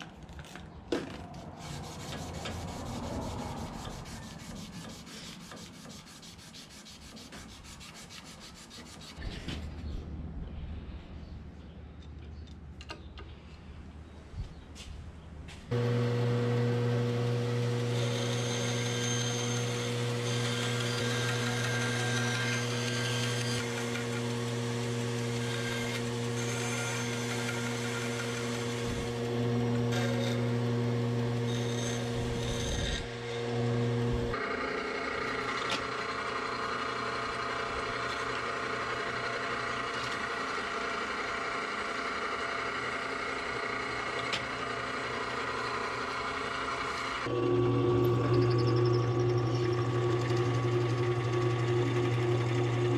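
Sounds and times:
bandsaw cutting wood: 15.7s - 52.9s
drill press drilling: 15.7s - 52.9s.

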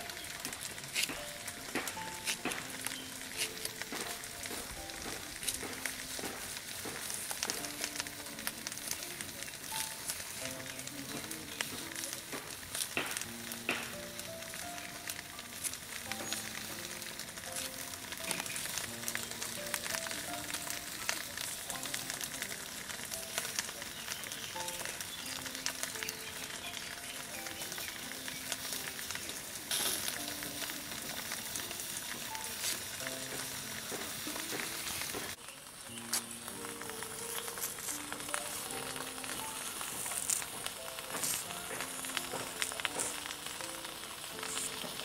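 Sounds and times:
instrumental music: 0.0s - 45.0s
steady hiss with clicks: 0.0s - 45.0s.

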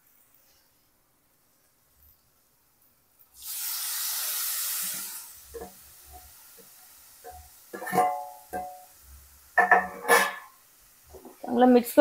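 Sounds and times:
food sizzling in hot oil: 3.3s - 12.0s
metal spoon scraping a pot: 7.3s - 8.8s, 9.6s - 10.6s.

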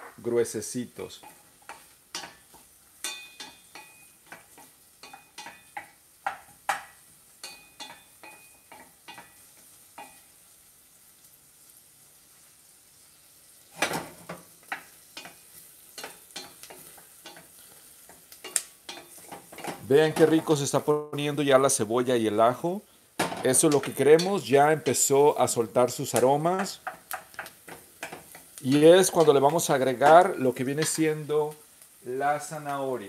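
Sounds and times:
faint sizzle: 0.0s - 33.0s
wooden spoon scraping a saucepan: 16.0s - 20.6s.

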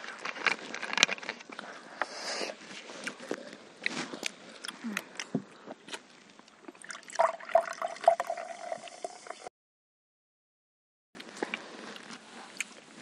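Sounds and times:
soda pouring into a glass: 6.8s - 9.5s.

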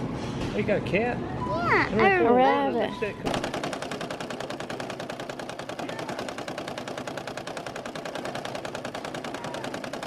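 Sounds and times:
embroidery machine needle clatter: 3.3s - 10.0s.

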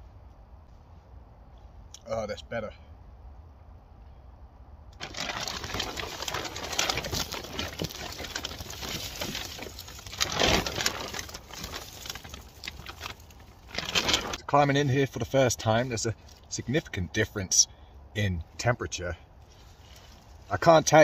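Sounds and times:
foil blanket and tarp crinkling: 5.0s - 16.6s, 19.5s - 21.0s.

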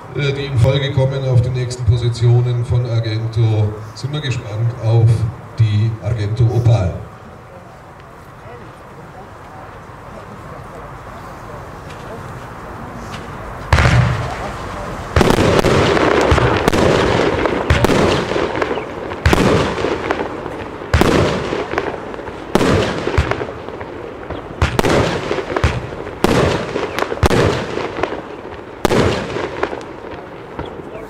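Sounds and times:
fireworks banging: 0.0s - 31.0s.

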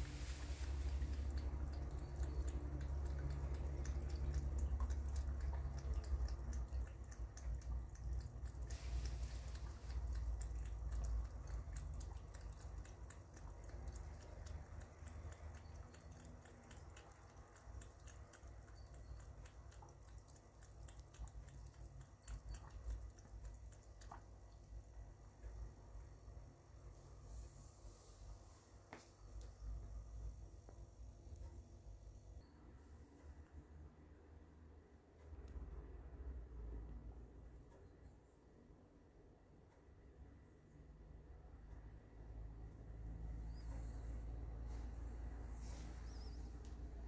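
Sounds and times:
cat lapping water: 0.0s - 28.2s.

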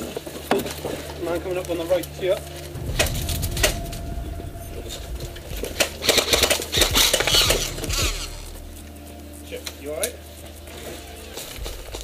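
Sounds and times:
footsteps with kit rattling: 5.2s - 12.0s.

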